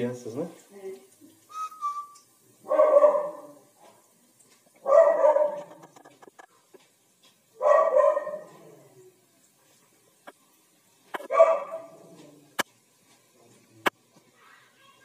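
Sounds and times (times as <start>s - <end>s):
frying oil crackling: 0.0s - 15.0s
dog barking: 2.6s - 3.7s, 4.8s - 6.0s, 7.6s - 8.7s, 11.2s - 12.0s.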